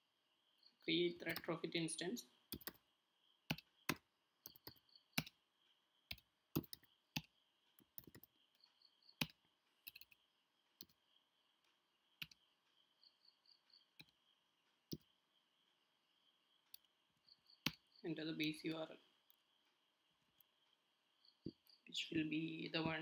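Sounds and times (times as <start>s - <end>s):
faint high-pitched whine: 0.0s - 23.0s
computer keyboard keystrokes: 2.5s - 2.8s, 6.1s - 7.3s, 8.0s - 8.3s.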